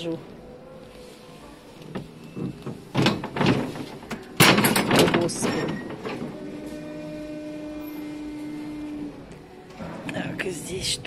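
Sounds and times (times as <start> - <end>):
display panels knocking and clattering: 2.4 - 6.4.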